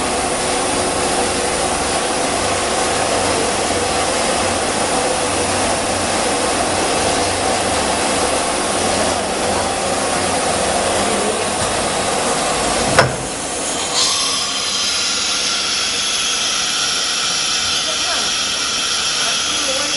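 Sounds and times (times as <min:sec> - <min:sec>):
wood router machine whining: 0:00.0 - 0:19.9
hiss of air: 0:13.2 - 0:19.7.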